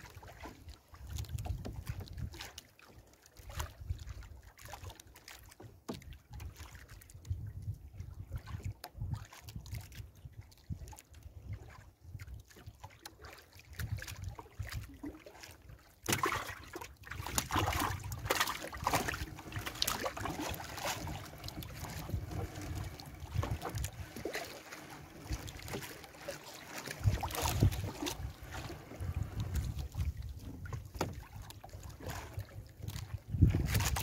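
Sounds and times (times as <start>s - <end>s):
water splashing and dripping: 0.0s - 7.0s, 12.4s - 34.0s
wind rumble on microphone: 1.0s - 2.5s, 6.0s - 12.8s, 13.7s - 15.2s, 17.0s - 25.9s, 26.8s - 34.0s.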